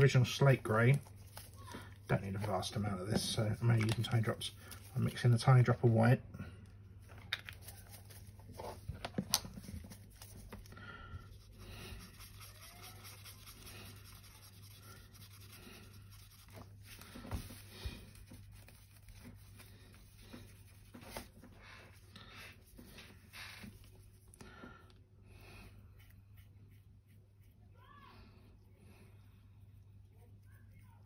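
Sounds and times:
paintbrush scratching on palette: 9.5s - 24.4s, 25.7s - 27.7s, 29.6s - 31.0s.

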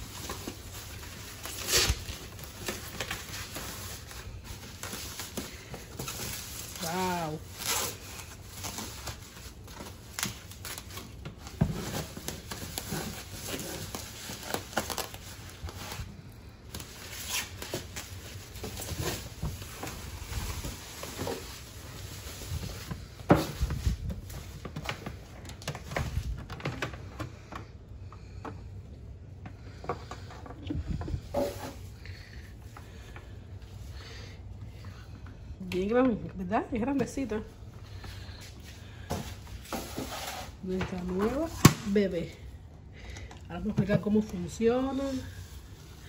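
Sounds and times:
packing wrap crinkling: 0.0s - 27.1s.

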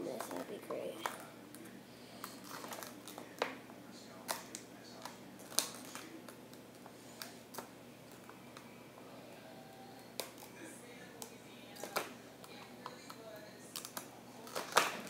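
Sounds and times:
plastic wrapping crinkling: 2.2s - 3.4s.

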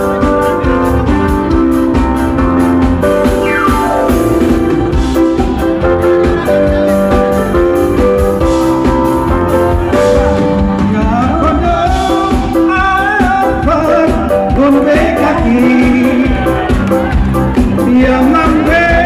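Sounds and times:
live band playing: 0.0s - 19.0s
man singing into microphone: 10.1s - 16.8s, 17.7s - 19.0s.

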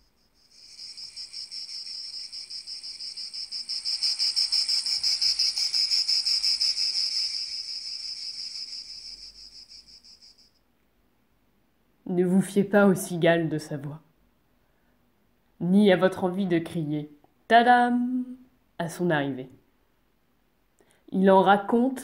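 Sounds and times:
cicadas buzzing: 0.0s - 10.6s.

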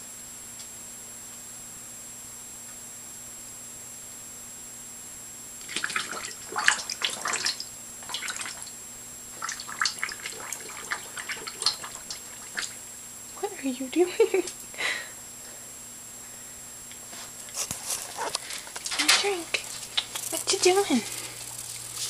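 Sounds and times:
dog blowing bubbles in water bowl: 5.6s - 12.9s, 18.1s - 22.0s.

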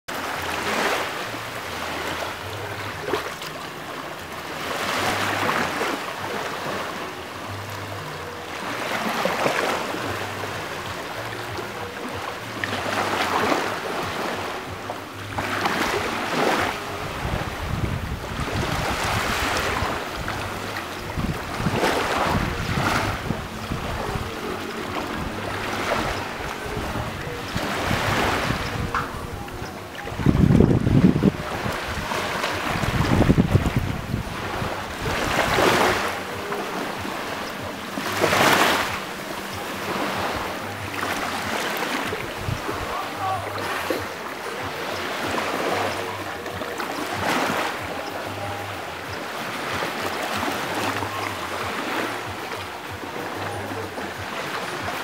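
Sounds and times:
small waves lapping on shore: 0.1s - 55.0s
wind buffeting microphone: 12.9s - 53.1s.

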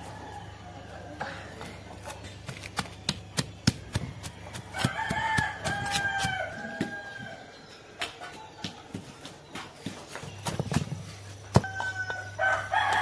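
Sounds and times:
pestle pounding in stone mortar: 2.4s - 7.0s
rooster crowing: 4.6s - 7.5s, 11.6s - 13.0s.

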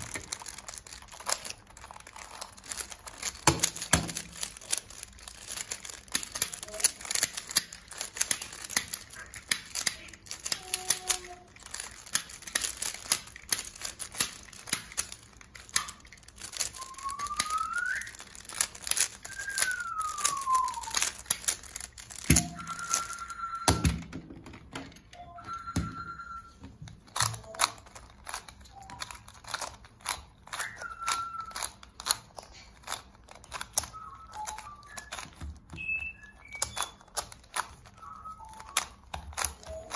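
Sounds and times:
plastic puzzle clicking: 0.0s - 39.9s
whistle-like tones: 6.6s - 6.9s, 15.8s - 24.1s, 25.2s - 26.6s, 30.5s - 32.0s, 33.8s - 39.9s.

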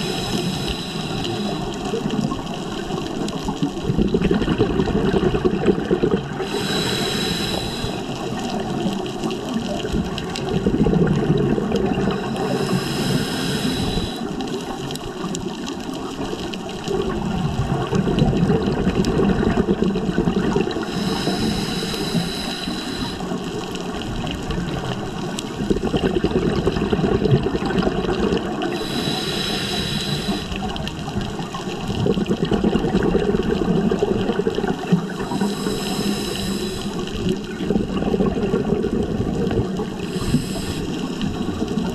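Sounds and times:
regulator inhale hiss: 0.0s - 1.9s, 6.4s - 9.0s, 12.1s - 14.5s, 20.7s - 23.7s, 28.6s - 31.0s, 35.0s - 37.2s, 39.9s - 41.5s
exhaled bubbles rumbling: 0.0s - 41.9s.

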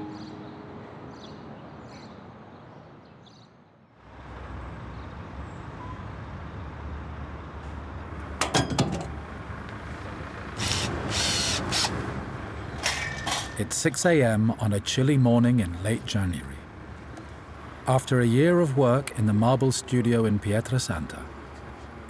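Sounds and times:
background music: 0.0s - 1.4s
sharp clanks: 12.8s - 13.6s.

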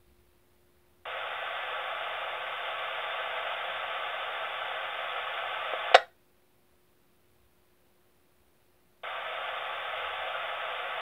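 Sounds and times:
radio static: 1.1s - 6.1s, 9.0s - 11.0s.

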